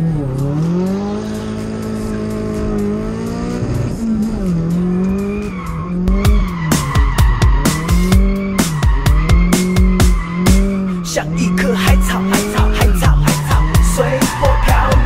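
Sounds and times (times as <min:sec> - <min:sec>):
car engine revving: 0:00.0 - 0:15.0
music with strong beat: 0:00.0 - 0:15.0
tyres squealing: 0:04.9 - 0:15.0.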